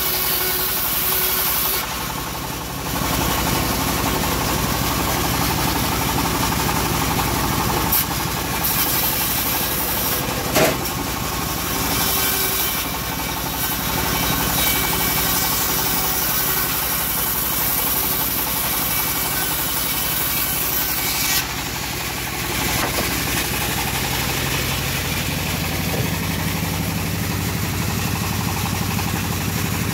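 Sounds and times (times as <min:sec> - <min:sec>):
sawmill engine running: 0:00.0 - 0:29.9
saw blade hissing through wood: 0:07.8 - 0:26.7.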